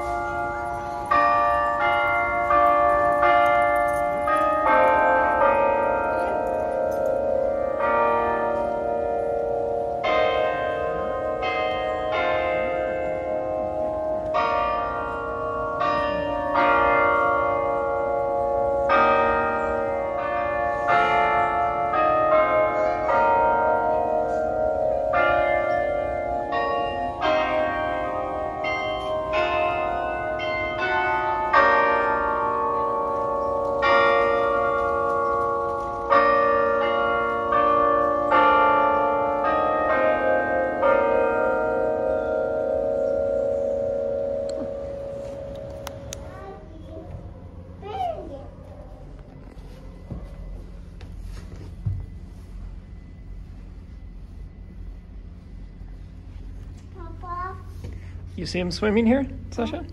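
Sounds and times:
clock bells playing a melody: 0.0 - 47.8.

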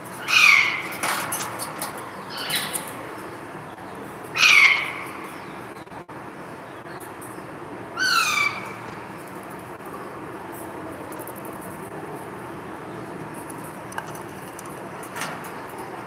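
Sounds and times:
parakeet squawking: 0.2 - 0.9, 4.4 - 5.1, 8.0 - 8.8.

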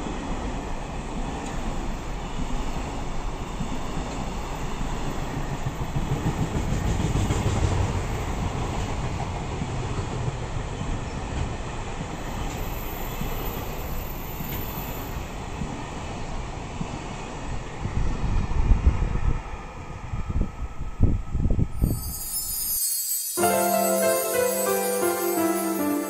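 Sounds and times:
train wheels running over rails: 0.0 - 17.2
thin high whine: 21.8 - 26.0.

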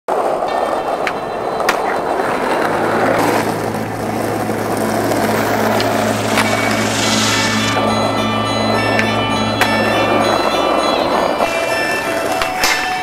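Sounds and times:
skateboard clacks: 0.1 - 13.0
skateboard wheels rolling on pavement: 0.1 - 13.0
steady low hum: 2.6 - 11.2.

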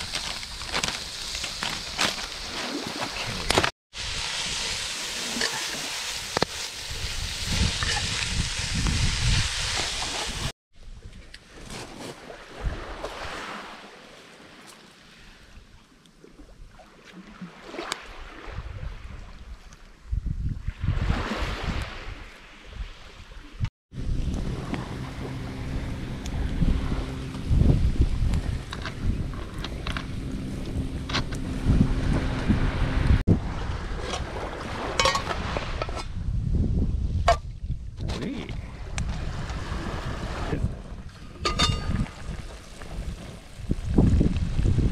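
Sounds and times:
surf hissing: 0.0 - 10.5
wind buffeting microphone: 6.8 - 10.5, 18.5 - 22.3, 23.6 - 44.9
metal lid clinking: 35.0 - 35.4, 41.4 - 42.1.

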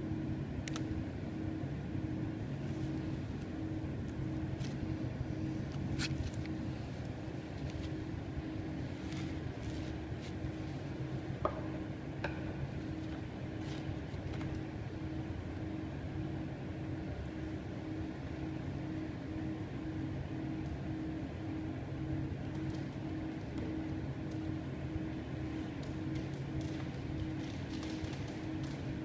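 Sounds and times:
machinery hum with low tones: 0.0 - 29.0.

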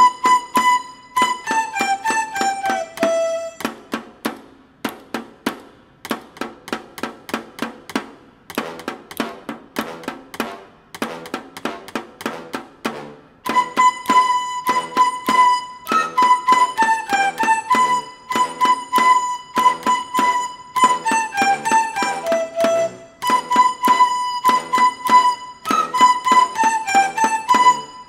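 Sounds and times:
bamboo flutes playing: 0.0 - 4.1, 13.4 - 28.0
stick taps on a board: 0.2 - 27.8.

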